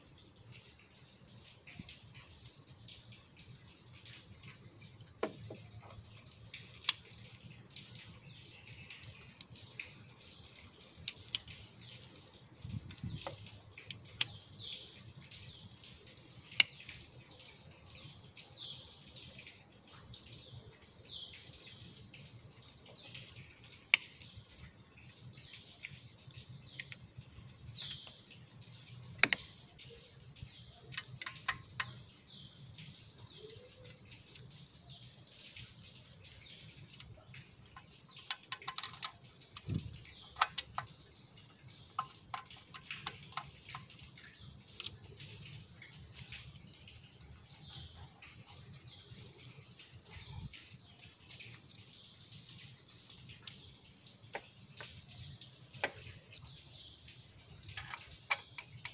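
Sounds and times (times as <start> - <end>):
metallic clicks and taps: 29.2 - 29.6, 37.7 - 41.0, 42.0 - 44.0.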